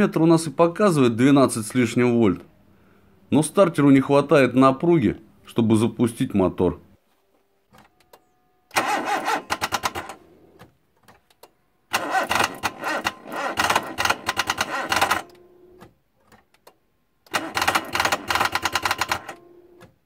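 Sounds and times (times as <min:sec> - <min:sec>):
starter motor cranking engine: 0:08.7 - 0:10.6, 0:11.9 - 0:15.8, 0:17.2 - 0:19.5.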